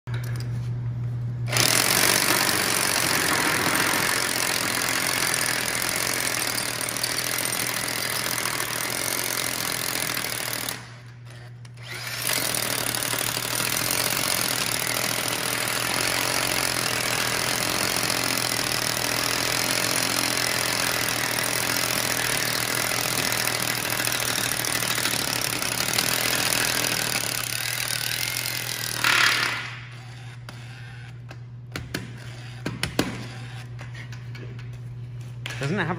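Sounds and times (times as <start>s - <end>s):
hammer drill boring into concrete: 1.5s - 11.0s, 11.8s - 30.7s.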